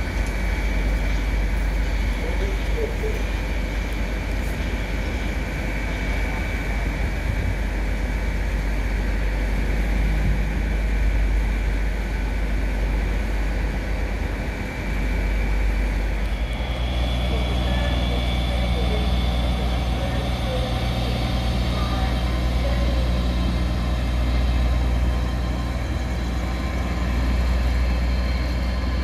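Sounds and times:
diesel train engine rumbling: 0.0s - 29.0s
high whine: 0.0s - 29.0s
second engine note: 16.3s - 24.8s.

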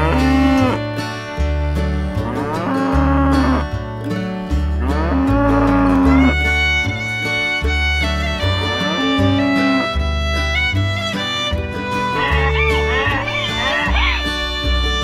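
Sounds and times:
cows mooing: 0.0s - 0.8s, 2.2s - 3.8s, 4.8s - 6.6s, 8.5s - 9.9s, 12.1s - 14.5s
background music with bass: 0.0s - 15.0s.

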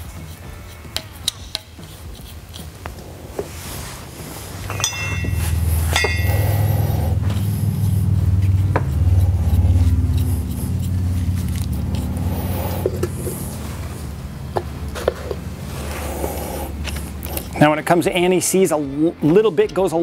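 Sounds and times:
loud low hum: 4.6s - 18.2s
ringing metal clinks: 4.7s - 6.8s.

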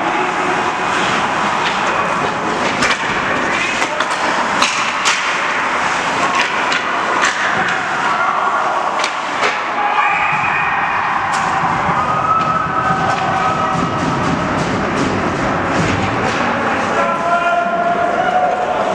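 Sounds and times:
skates scraping: 0.1s - 18.9s
hockey sticks and puck knocking: 1.6s - 8.1s, 9.0s - 10.5s.

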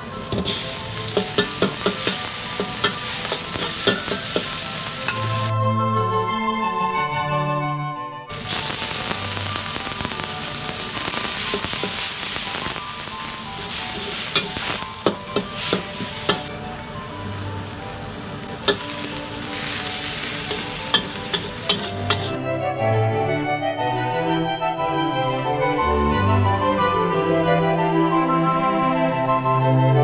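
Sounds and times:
food sizzling in oil: 0.0s - 5.5s, 8.3s - 22.4s
metal spatula scraping wok: 0.1s - 5.5s, 11.1s - 16.5s, 18.4s - 22.4s.

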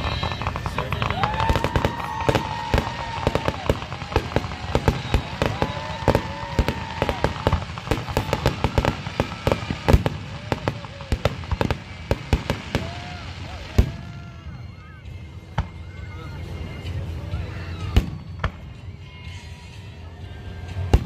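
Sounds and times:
fireworks popping and banging: 0.0s - 14.7s, 15.5s - 16.0s.

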